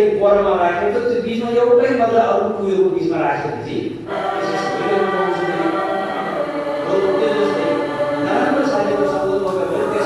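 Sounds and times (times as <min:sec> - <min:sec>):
congregation chanting prayers: 0:04.0 - 0:10.0.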